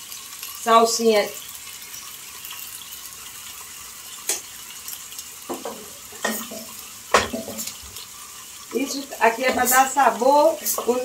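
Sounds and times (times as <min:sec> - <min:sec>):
steady sizzle: 0:00.0 - 0:11.0
spoon stirring meat in a pot: 0:05.4 - 0:07.8
spoon knocking against pot: 0:05.5 - 0:07.7.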